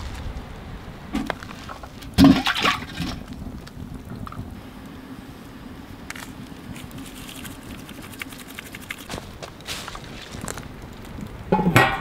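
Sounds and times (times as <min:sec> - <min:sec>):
shaker rattling: 0:06.7 - 0:09.3.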